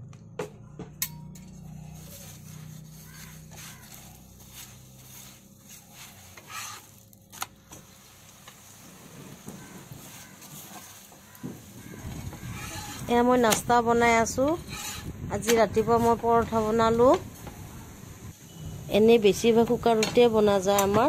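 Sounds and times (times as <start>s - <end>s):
steel spatula scraping a pan: 1.6s - 7.0s, 9.6s - 13.2s, 14.6s - 15.2s
oil sizzling under bread: 2.2s - 13.0s.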